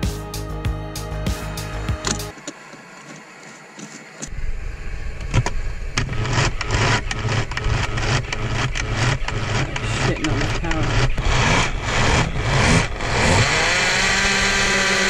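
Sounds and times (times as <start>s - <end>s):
blender motor humming: 6.0s - 15.0s.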